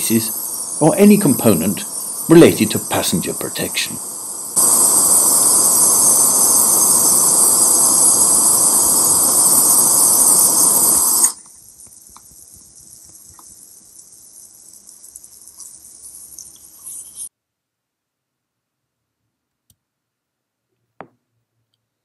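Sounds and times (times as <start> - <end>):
faint low hiss with ticks: 0.0 - 17.3
gas torch flame hissing: 0.0 - 17.3.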